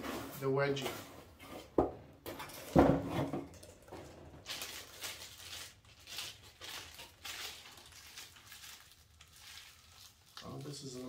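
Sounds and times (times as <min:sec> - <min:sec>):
plastic packaging crinkling: 0:03.5 - 0:11.0.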